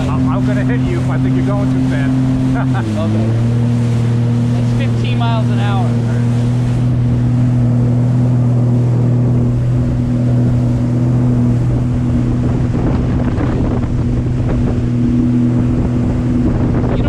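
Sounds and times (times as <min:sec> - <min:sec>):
water spray rushing along hull: 0:00.0 - 0:17.0
watercraft engine droning: 0:00.0 - 0:17.0
wind buffeting microphone: 0:00.0 - 0:17.0.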